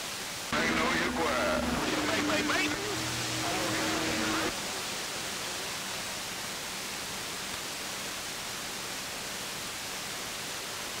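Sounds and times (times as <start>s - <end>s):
radio static hiss: 0.2s - 6.2s.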